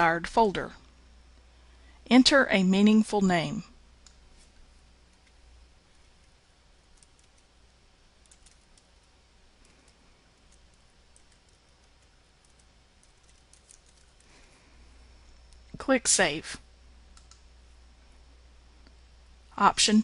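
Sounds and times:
computer keyboard keystrokes: 6.9 - 7.5, 8.2 - 8.9, 9.6 - 14.2.

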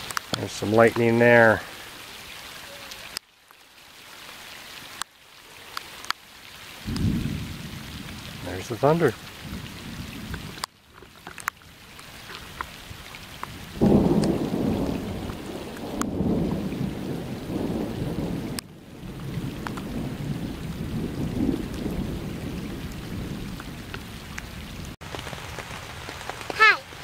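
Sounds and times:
rain falling: 0.0 - 27.0
thunder rumbling: 6.8 - 10.6, 13.4 - 25.0.

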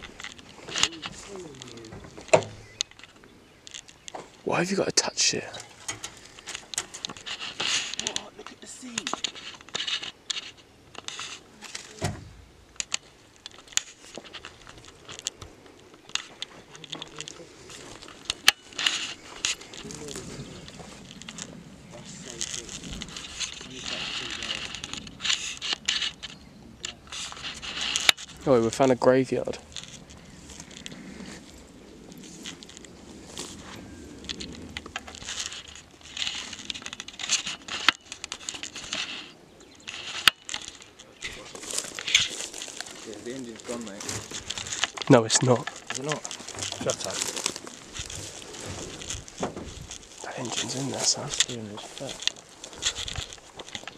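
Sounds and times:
stems snapping: 0.0 - 4.5, 5.6 - 53.9
footsteps through long grass: 0.0 - 4.7, 5.6 - 12.0, 12.6 - 53.9
sharp clicks: 0.0 - 11.4, 12.0 - 53.9
light rustling: 0.0 - 53.9.

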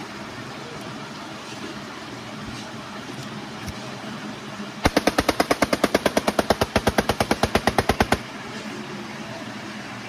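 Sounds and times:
toy machine-gun sound effect: 4.9 - 8.2.

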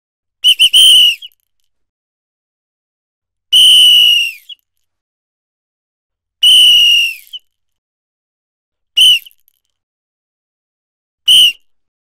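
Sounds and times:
shrill whistle blasts: 0.4 - 1.4, 3.5 - 4.7, 6.4 - 7.5, 9.0 - 9.5, 11.3 - 11.7.

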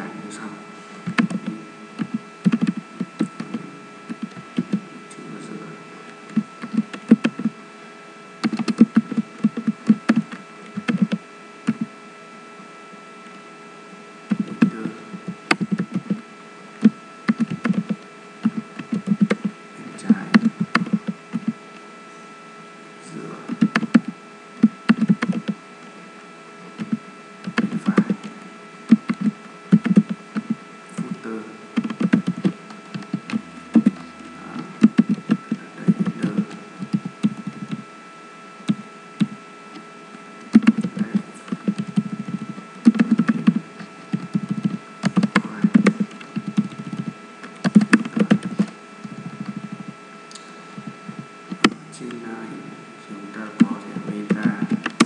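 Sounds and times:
faint electrical hum: 0.0 - 55.0
typing on keyboard: 2.0 - 3.5, 6.3 - 7.5, 8.4 - 11.9, 16.8 - 19.5, 24.8 - 25.6, 26.8 - 28.1, 28.9 - 30.6, 31.8 - 34.0, 41.6 - 48.7.

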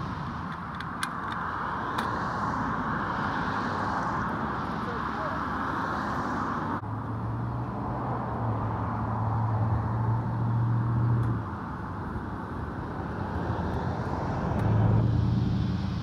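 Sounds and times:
steady rushing noise: 0.0 - 7.1, 11.3 - 16.0.

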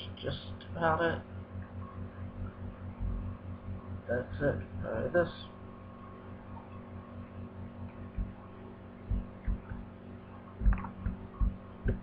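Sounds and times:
electrical mains hum: 0.0 - 12.0
short dull thumps: 9.1 - 9.8, 10.6 - 12.0.

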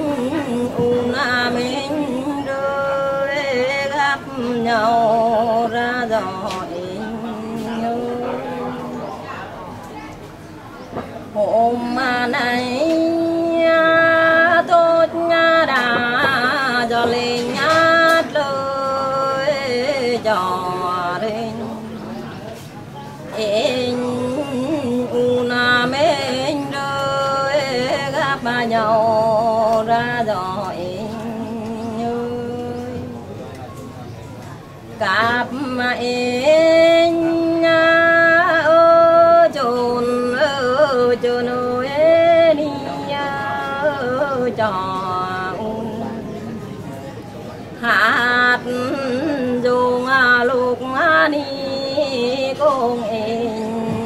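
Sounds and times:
woman singing long notes: 0.0 - 9.2, 11.4 - 22.2, 23.3 - 33.4, 35.0 - 46.8, 47.8 - 54.0.

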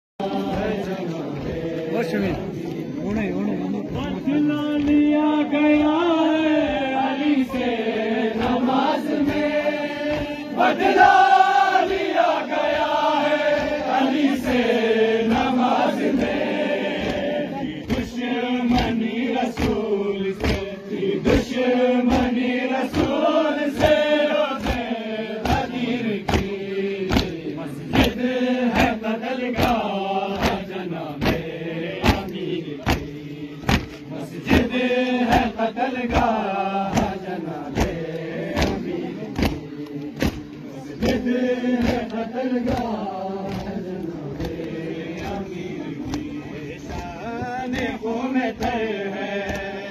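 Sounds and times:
men chanting a mourning lament: 0.2 - 49.9
chest-beating slaps: 15.3 - 49.9.

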